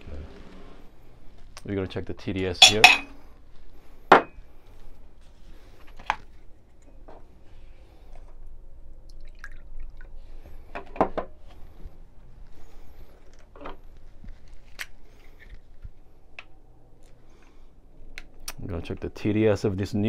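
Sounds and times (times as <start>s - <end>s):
water pouring into glass: 9.1s - 10.1s.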